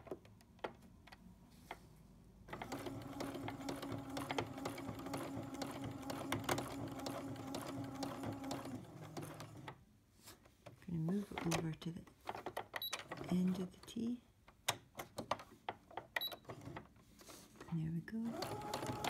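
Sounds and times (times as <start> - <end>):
sewing machine stitching: 2.5 - 9.8, 18.2 - 19.0.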